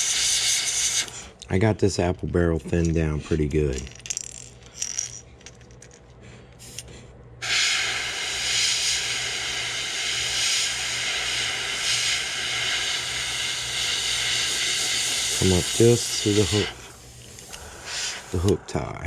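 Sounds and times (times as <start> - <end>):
airbrush hiss: 0.0 - 1.1, 7.4 - 18.6.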